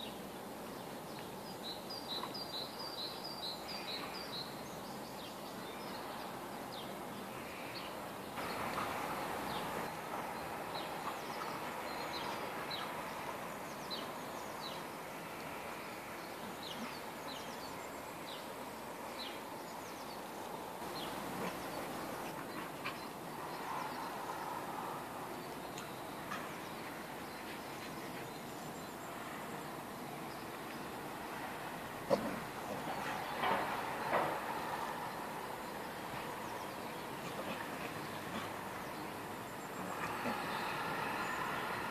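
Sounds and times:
small birds chirping: 0.0s - 41.9s
steady background hiss: 0.0s - 41.9s.

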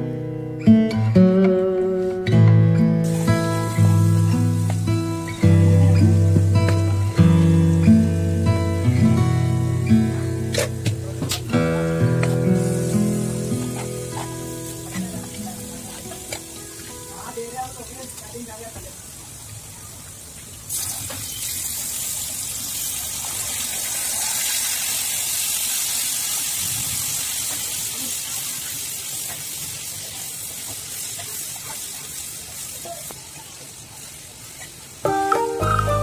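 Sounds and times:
gravy sizzling in a pan: 3.0s - 36.0s
background music: 35.1s - 36.0s.

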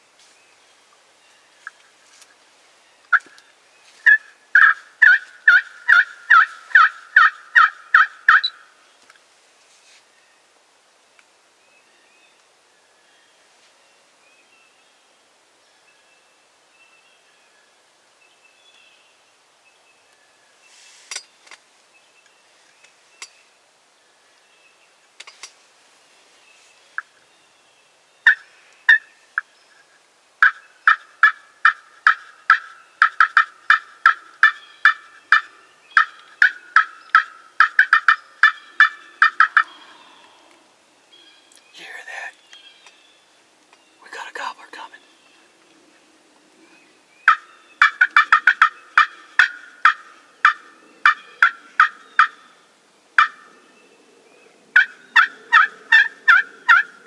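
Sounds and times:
wild turkey yelping: 4.0s - 8.6s, 28.2s - 29.1s, 30.4s - 40.4s, 47.2s - 52.5s, 53.2s - 53.5s, 54.8s - 57.0s.

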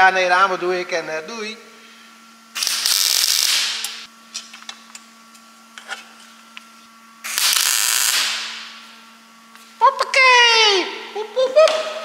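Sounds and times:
welder crackling: 7.3s - 8.7s.

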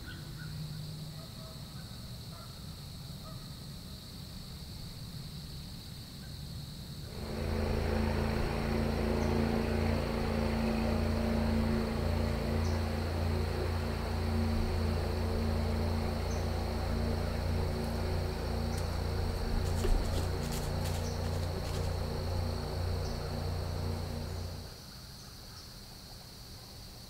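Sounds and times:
crickets droning: 0.0s - 27.0s
music with low sustained tones: 7.1s - 24.9s.

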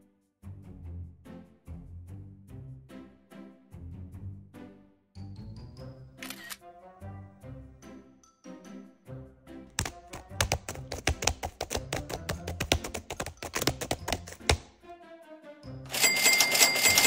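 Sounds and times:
background music: 0.0s - 17.0s
laptop keyboard typing: 9.8s - 14.7s, 15.9s - 17.0s.

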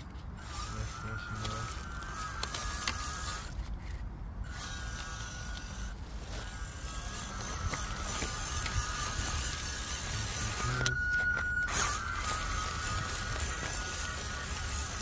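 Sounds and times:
electric rc truck motor whining: 0.0s - 15.0s
tyres crunching dry leaves: 0.4s - 4.0s, 4.6s - 15.0s.

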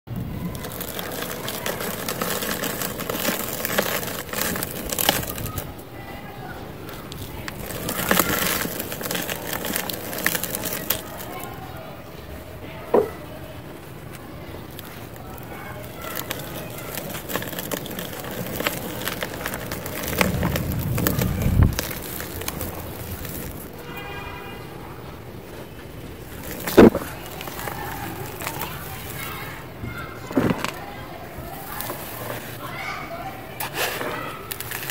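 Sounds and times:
sharp cracks: 0.1s - 5.9s, 6.8s - 11.6s, 14.7s - 23.9s
dry cement powder crunching: 0.1s - 34.9s.

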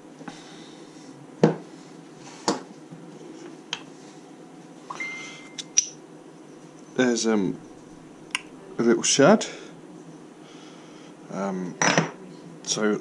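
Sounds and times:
faint steady high tone: 4.9s - 5.8s.

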